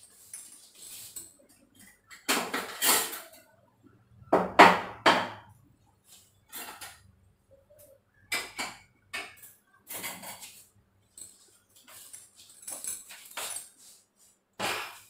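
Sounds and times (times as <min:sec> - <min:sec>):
dishes and utensils clattering: 0:00.0 - 0:03.6, 0:06.4 - 0:07.1, 0:07.7 - 0:13.8.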